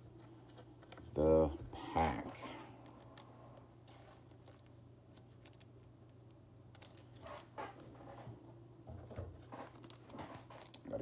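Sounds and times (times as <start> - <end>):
faint clicks and rustles: 2.3 - 11.0.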